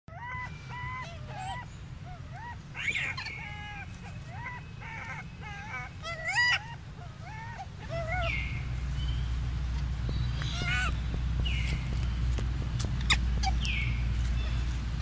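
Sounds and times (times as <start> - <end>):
infant monkey cooing: 0.1 - 8.8, 10.4 - 11.0, 13.0 - 14.0
steady low hum: 0.1 - 15.0.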